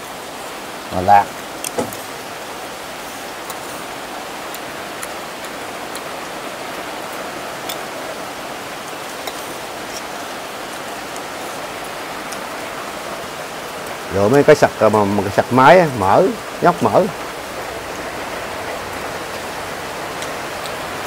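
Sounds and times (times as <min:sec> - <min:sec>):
steady rain hiss: 0:00.0 - 0:21.0.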